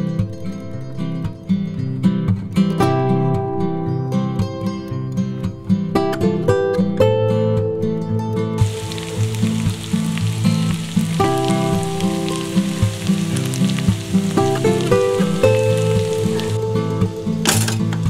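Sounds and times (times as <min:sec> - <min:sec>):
acoustic guitar music: 0:00.0 - 0:18.0
vegetables sizzling in a frying pan: 0:08.6 - 0:18.0.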